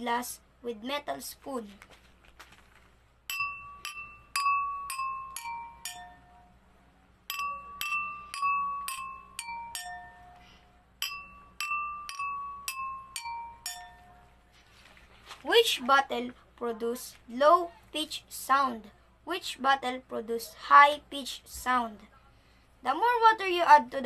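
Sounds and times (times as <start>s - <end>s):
spoon tapping ringing wine glasses: 3.3s - 6.6s, 7.3s - 14.3s.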